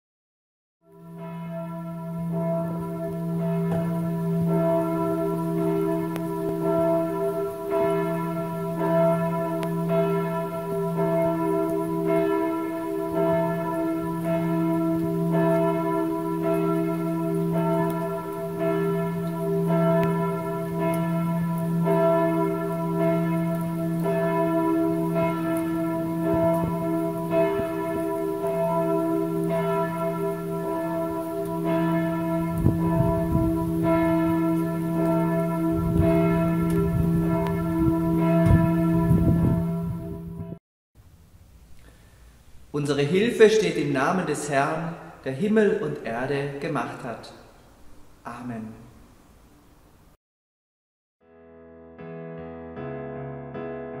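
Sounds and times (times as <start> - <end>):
church bells ringing: 0.9 - 40.6.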